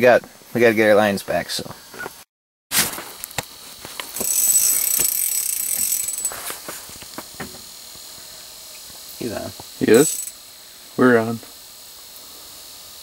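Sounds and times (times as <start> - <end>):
fishing reel ticking: 4.1 - 6.4, 9.8 - 10.4.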